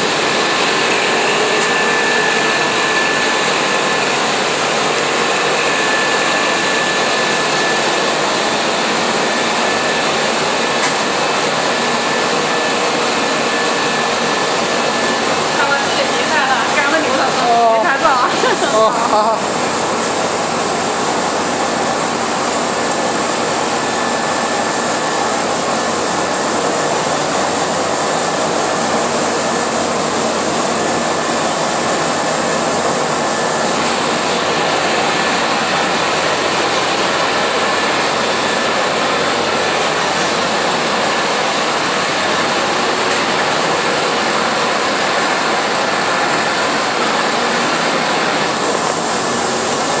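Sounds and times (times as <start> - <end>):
coating machine running: 0.0 - 50.0
faint machine whine: 0.0 - 50.0.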